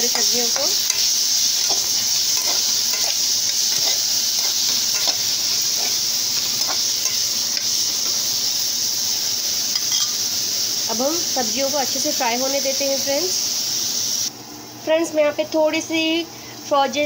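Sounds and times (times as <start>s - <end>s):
spatula scraping pan: 0.0s - 8.2s
vegetables sizzling in oil: 0.0s - 15.9s.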